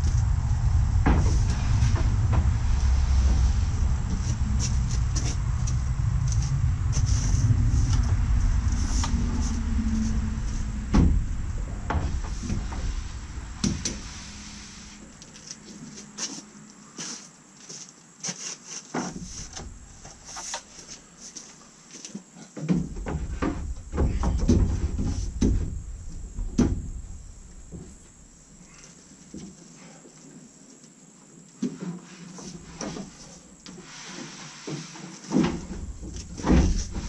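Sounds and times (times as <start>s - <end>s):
low rumble: 0.0s - 16.0s, 19.2s - 20.3s, 22.9s - 28.7s, 35.6s - 37.0s.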